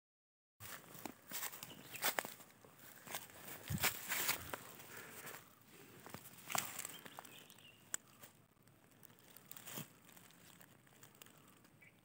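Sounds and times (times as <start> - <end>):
faint rustling and handling: 0.6 - 11.6.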